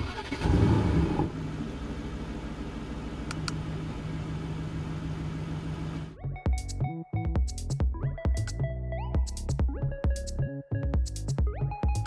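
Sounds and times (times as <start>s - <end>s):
car engine revving and idling: 0.0s - 6.2s.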